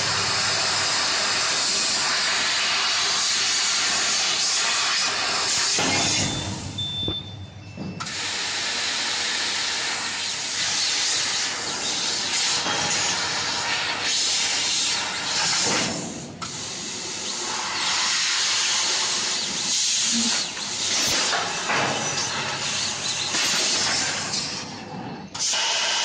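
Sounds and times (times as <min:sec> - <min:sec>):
loud hiss of gas jet: 0:00.0 - 0:06.8, 0:08.1 - 0:24.7, 0:25.4 - 0:26.0.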